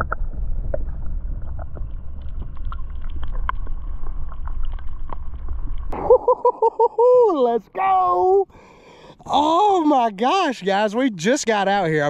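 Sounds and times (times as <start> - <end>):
underwater rumble of moving water: 0.0 - 6.2.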